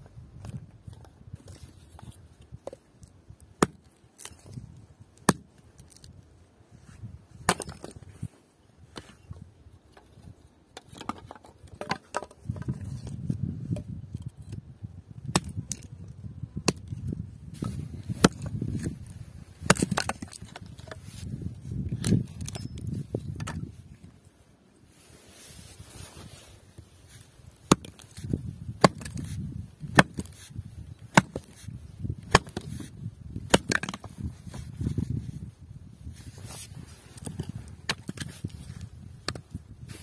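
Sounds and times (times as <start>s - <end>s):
hatchet chopping wood: 3.6s - 4.3s, 5.2s - 5.5s, 7.5s - 7.9s, 15.3s - 15.9s, 16.6s - 16.9s, 18.2s - 18.9s, 19.6s - 21.0s, 27.7s - 34.1s.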